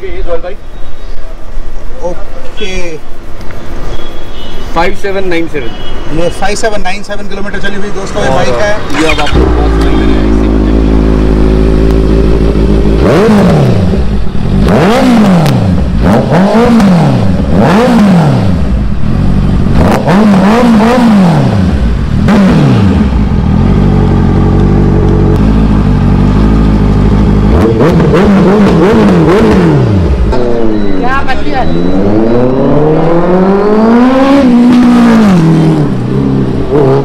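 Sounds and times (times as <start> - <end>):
motorcycle engine revving: 7.9 - 37.0.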